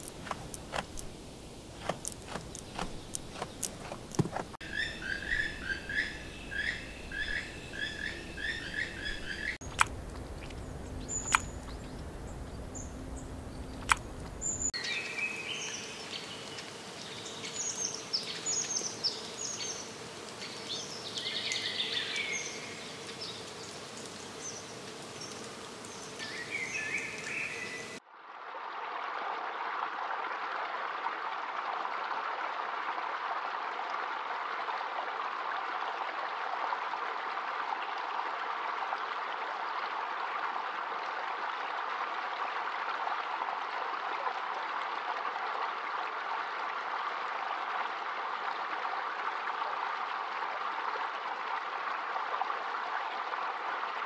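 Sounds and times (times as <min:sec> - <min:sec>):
sharp clicks: 0:00.0 - 0:01.2, 0:01.8 - 0:04.6, 0:09.6 - 0:10.6, 0:11.2 - 0:11.8, 0:13.7 - 0:14.4
woodland stream rushing: 0:00.0 - 0:54.0
birds chirping and singing: 0:01.8 - 0:16.3.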